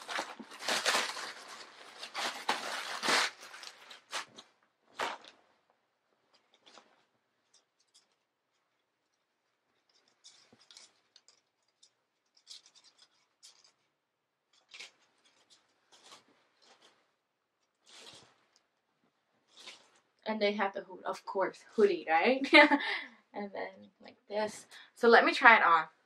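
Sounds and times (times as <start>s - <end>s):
fabric rustling: 0.0s - 13.9s, 14.5s - 18.8s, 19.4s - 20.2s.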